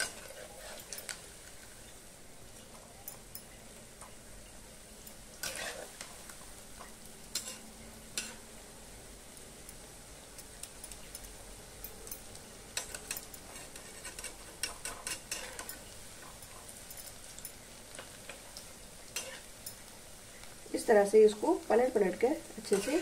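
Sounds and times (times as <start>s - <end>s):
metal spatula clicking and scraping: 0.0s - 1.2s, 5.0s - 6.1s, 7.3s - 7.6s, 8.2s - 8.4s, 10.4s - 19.9s, 22.6s - 23.0s
food deep-frying in hot oil: 0.0s - 23.0s.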